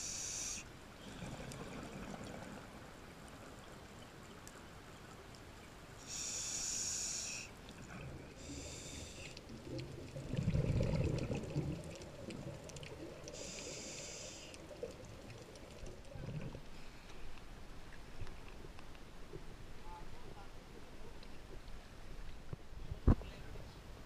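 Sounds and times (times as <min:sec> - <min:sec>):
regulator hissing inhalations: 0:00.0 - 0:00.7, 0:06.0 - 0:07.5, 0:08.4 - 0:09.4, 0:13.4 - 0:14.6
exhaled bubbles rumbling: 0:09.5 - 0:13.6, 0:14.6 - 0:16.8.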